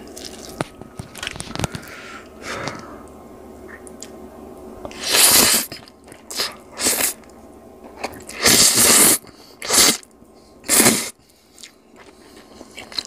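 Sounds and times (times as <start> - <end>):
wet squelching noodles tossed: 0.1 - 1.4.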